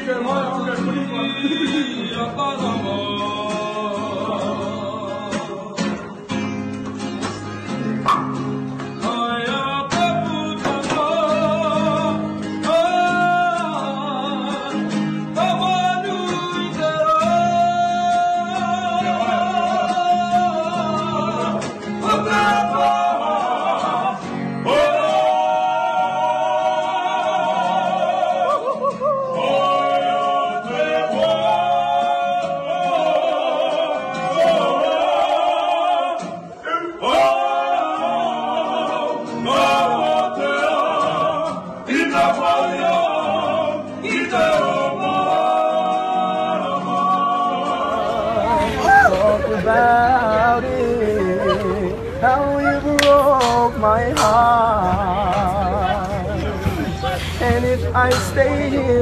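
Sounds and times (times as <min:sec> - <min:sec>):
solo singing with vibrato: 0:15.4 - 0:59.0.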